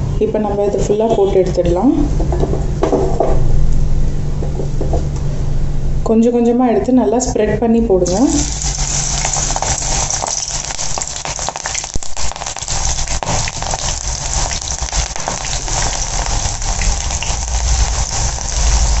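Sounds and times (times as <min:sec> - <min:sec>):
deep-frying in hot oil sizzling: 0:08.0 - 0:19.0.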